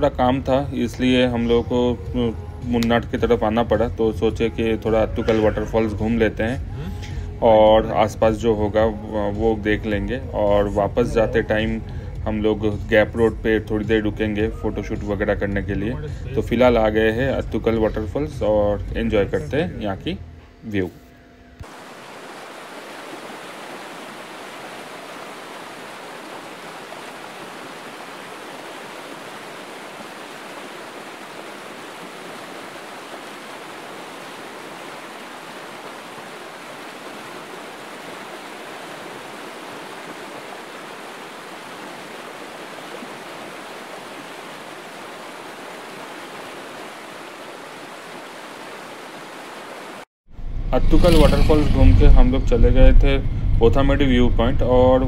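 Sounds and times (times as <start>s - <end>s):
waterfall roar: 21.6s - 50.0s.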